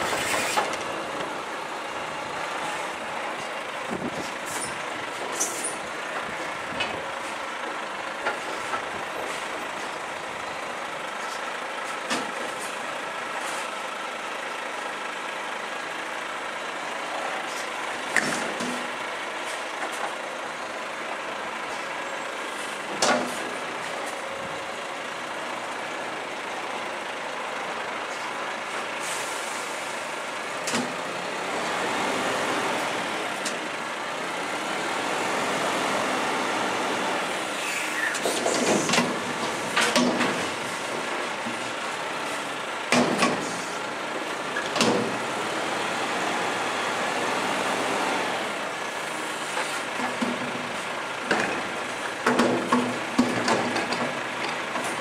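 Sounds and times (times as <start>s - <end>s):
garbage truck diesel engine: 0.0s - 55.0s
air brake hisses and clunks: 29.0s - 29.8s.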